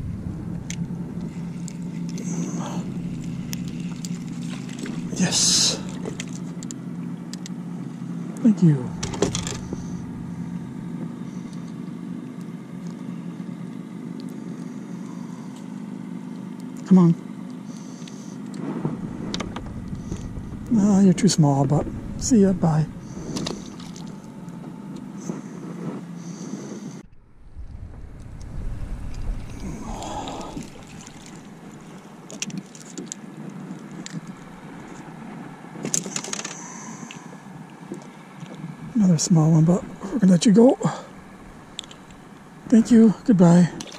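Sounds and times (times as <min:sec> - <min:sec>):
water lapping at hull: 0:00.0 - 0:16.8, 0:17.5 - 0:27.0, 0:28.0 - 0:43.9
motor humming at idle: 0:00.0 - 0:43.9
rattling clicks: 0:09.0 - 0:09.9.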